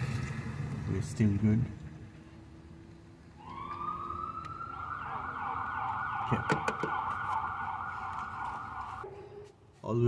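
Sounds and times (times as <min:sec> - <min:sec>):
high siren-like tone: 0:03.4 - 0:09.1.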